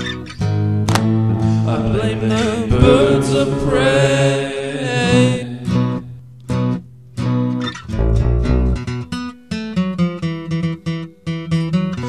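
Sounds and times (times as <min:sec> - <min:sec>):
acoustic guitar playing: 0:00.0 - 0:12.0
wordless singing with vibrato: 0:01.4 - 0:06.2.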